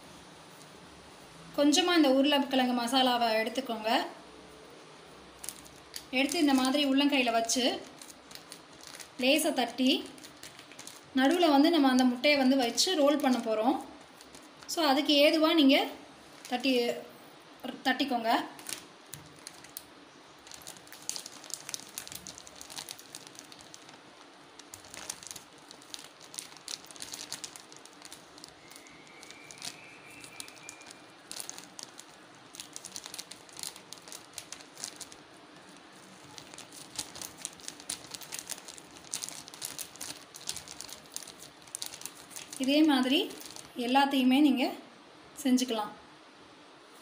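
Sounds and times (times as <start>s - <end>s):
plastic bags crinkling: 5.4s - 15.5s, 16.2s - 16.8s, 18.5s - 43.8s.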